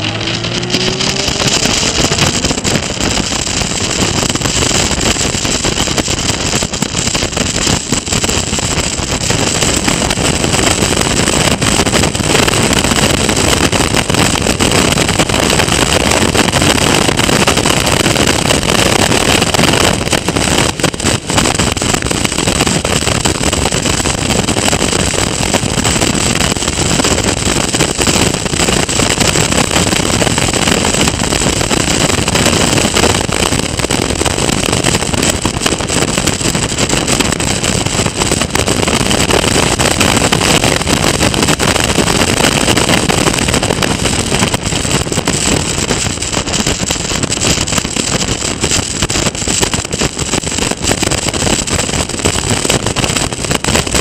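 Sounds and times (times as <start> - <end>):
race car engine running: 0.0 - 38.6
heavy wind rush on microphone: 0.0 - 54.0.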